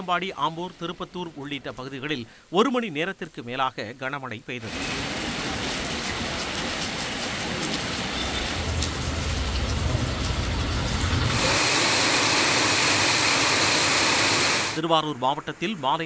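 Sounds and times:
heavy rain on a paved street: 0:04.6 - 0:14.8
low rumble: 0:08.4 - 0:11.4.

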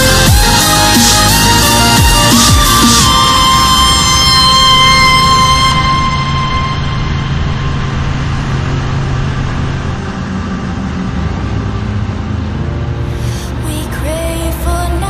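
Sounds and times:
wind and road noise: 0:03.1 - 0:13.8.

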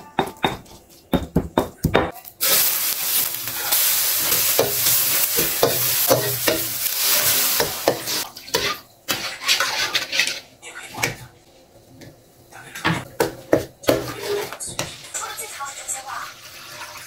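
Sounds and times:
chili paste sizzling in hot oil: 0:02.2 - 0:10.6, 0:13.2 - 0:17.0
metal spatula scraping a wok: 0:02.4 - 0:10.5, 0:13.9 - 0:15.3.

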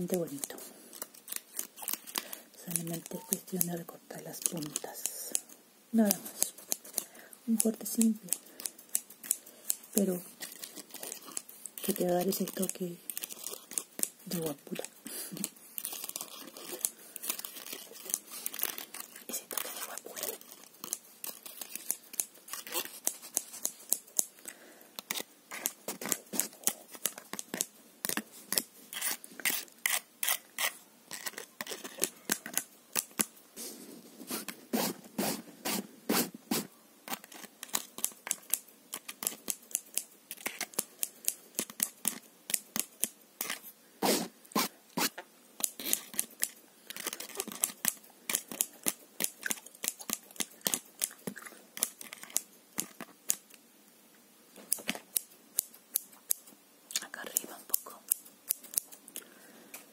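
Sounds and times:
scissors snipping: 0:00.1 - 0:24.4, 0:37.1 - 0:43.6, 0:57.3 - 0:59.2.

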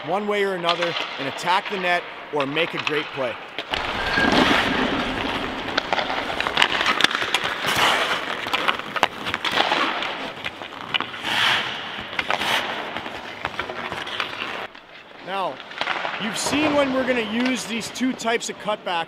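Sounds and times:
skate blades scraping ice: 0:03.6 - 0:17.8
stick clicking on puck: 0:05.7 - 0:14.9.

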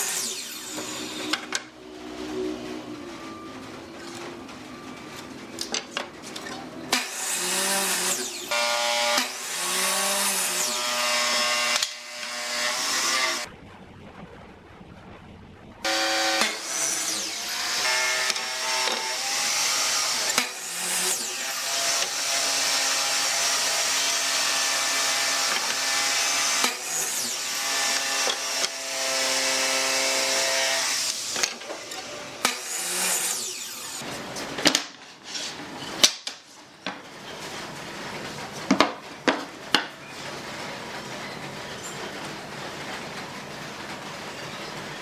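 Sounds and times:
miter saw cutting wood: 0:00.0 - 0:03.4, 0:06.9 - 0:13.5, 0:15.8 - 0:34.0.

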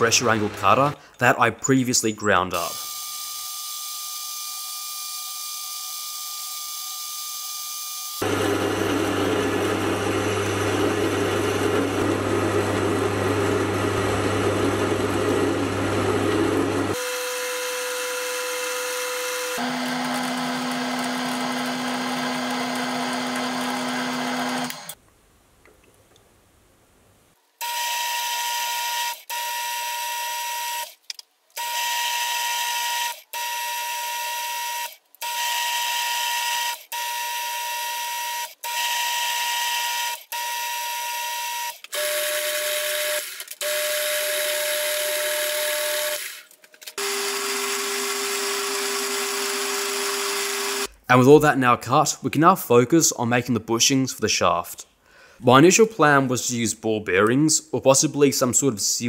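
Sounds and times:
metal lathe humming and cutting: 0:08.2 - 0:25.0, 0:47.0 - 0:50.9.

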